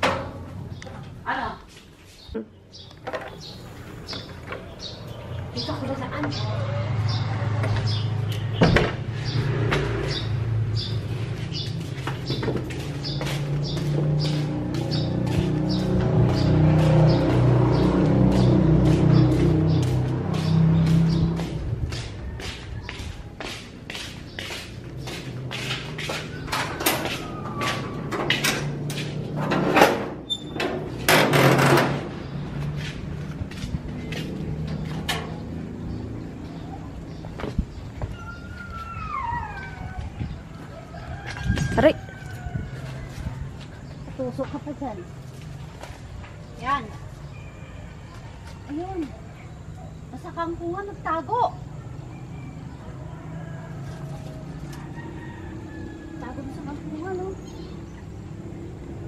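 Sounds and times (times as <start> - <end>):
footsteps on concrete: 9.6 - 29.4, 32.3 - 47.3
door squeak: 30.2 - 31.7, 38.1 - 40.0.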